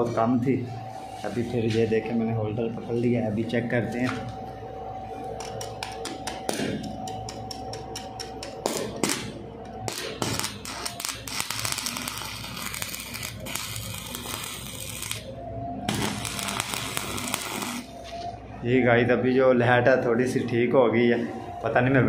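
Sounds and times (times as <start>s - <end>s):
welding electrode tapping steel: 5.4s - 9.3s, 9.9s - 15.3s, 15.9s - 17.8s
crackling welding arc: 7.3s - 15.3s, 15.9s - 17.9s.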